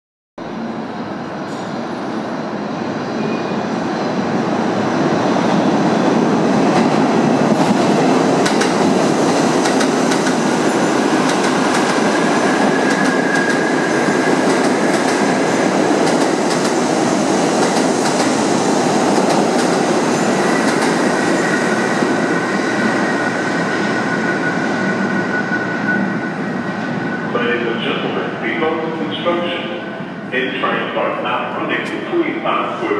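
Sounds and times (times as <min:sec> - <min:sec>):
subway train rumbling: 0:00.4 - 0:32.9
high wheel squeal: 0:23.9 - 0:27.3.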